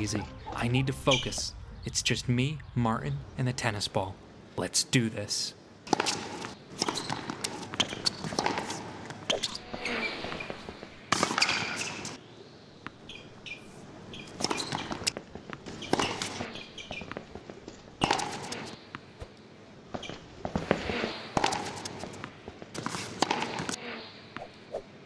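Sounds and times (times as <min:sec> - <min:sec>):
tennis ball bouncing: 0:05.9 - 0:12.2, 0:14.1 - 0:17.2, 0:18.0 - 0:19.3, 0:20.5 - 0:23.8.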